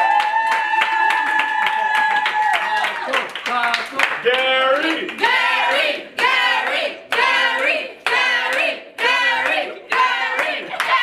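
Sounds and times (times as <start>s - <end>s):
hand clapping: 0.0s - 5.4s
crowd chanting: 4.8s - 11.0s.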